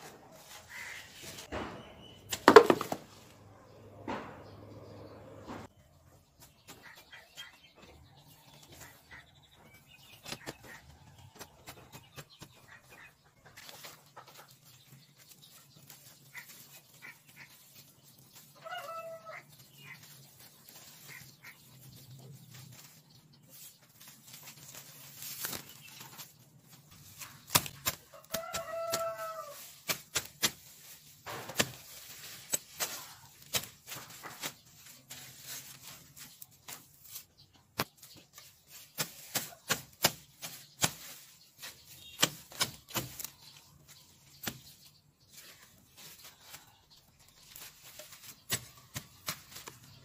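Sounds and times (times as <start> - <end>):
chicken calling: 0.2 - 1.5, 18.5 - 22.3, 28.1 - 29.7
weeds snapping and chopping: 24.3 - 26.3, 26.9 - 44.8, 47.4 - 50.0.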